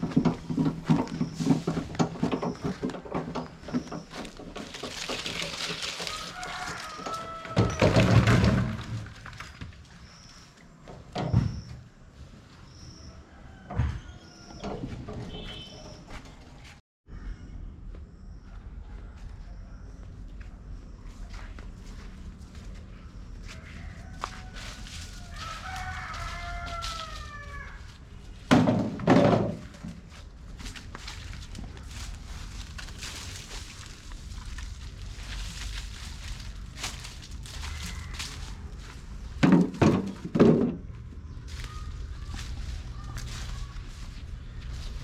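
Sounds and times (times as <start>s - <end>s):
coconuts thudding in wheelbarrow: 0.0s - 9.8s, 28.5s - 30.2s, 39.3s - 41.0s
rooster crowing: 6.0s - 8.2s, 13.0s - 14.6s, 23.4s - 28.0s, 36.9s - 39.0s.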